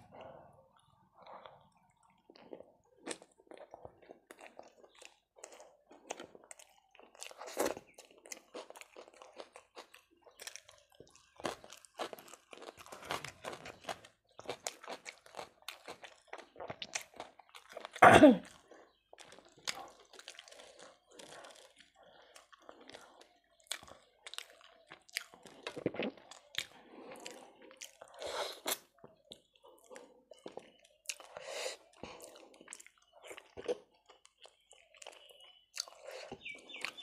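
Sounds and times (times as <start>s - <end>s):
mouth chewing food: 0.0s - 37.0s
loud throat sound: 18.0s - 18.4s.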